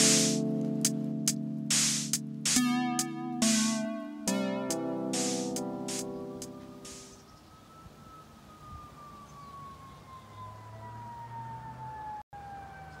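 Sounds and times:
music chord: 0.0 - 7.2.

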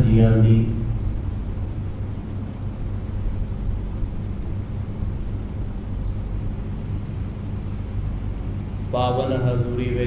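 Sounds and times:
low rumble: 0.0 - 7.2
constant low hum: 0.0 - 10.0.

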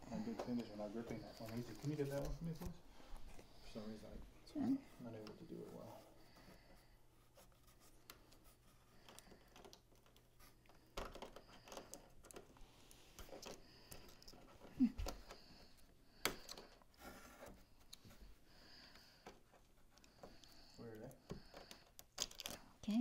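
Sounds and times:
hands clicking and rustling: 0.2 - 3.4, 7.9 - 23.0.

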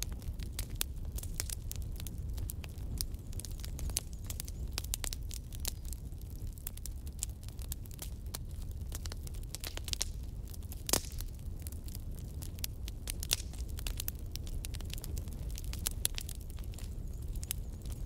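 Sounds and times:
crackling pops and clicks: 8.9 - 11.4, 12.4 - 18.0.

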